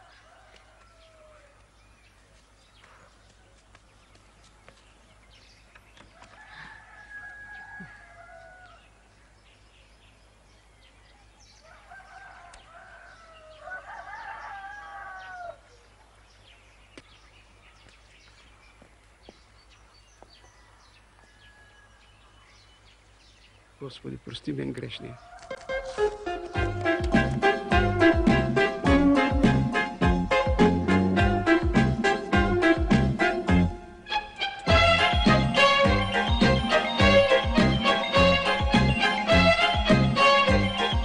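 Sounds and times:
rooster crowing: 6.2s - 8.8s, 11.6s - 15.7s, 20.4s - 22.1s, 25.0s - 26.2s.

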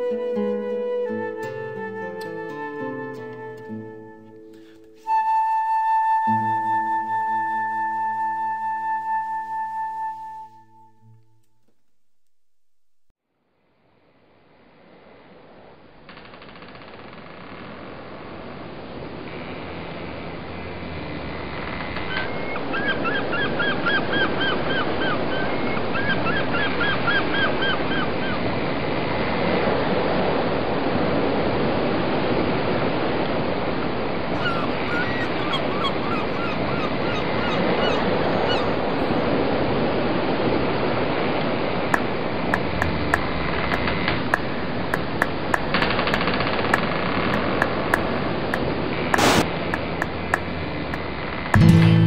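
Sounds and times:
wind and water rush: 22.6s - 51.5s
squawking calls: 34.3s - 39.4s
sharp clicks: 42.0s - 51.0s.

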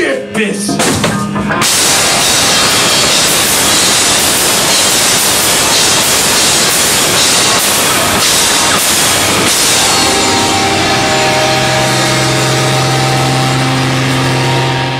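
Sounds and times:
drums: 0.0s - 14.9s
electric guitar: 0.7s - 14.9s
cymbal crashes: 1.6s - 14.9s
upright bass: 7.2s - 14.9s.

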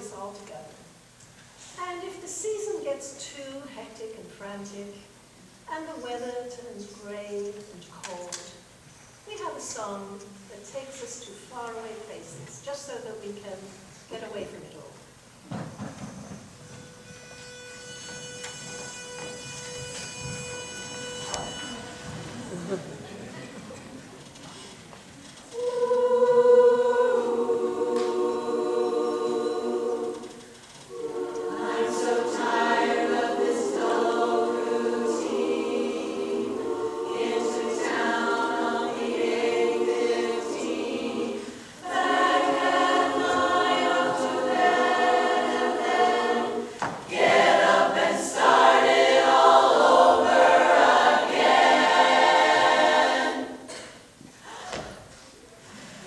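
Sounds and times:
women's chorus singing: 25.5s - 53.9s.

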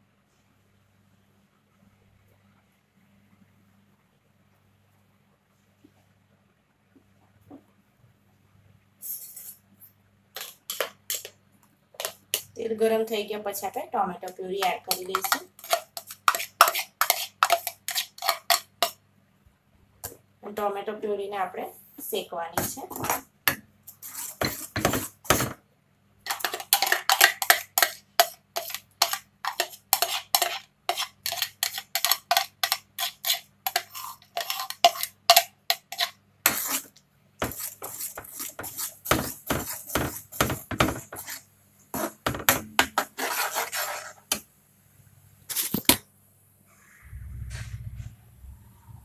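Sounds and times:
metal spoon clinking and scraping: 9.0s - 9.6s, 10.4s - 11.3s, 14.6s - 18.7s, 26.3s - 41.4s.

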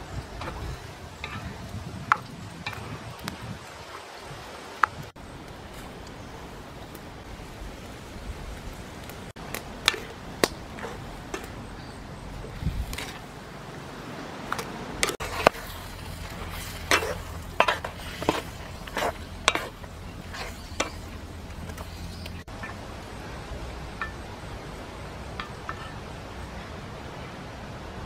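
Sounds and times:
wooden spoon stirring in clay pot: 0.1s - 3.6s, 9.5s - 13.3s, 14.5s - 22.9s.

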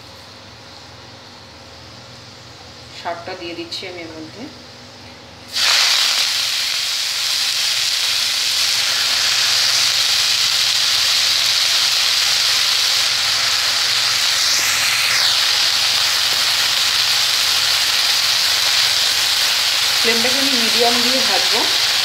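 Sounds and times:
greens sizzling in hot oil: 5.5s - 22.0s.

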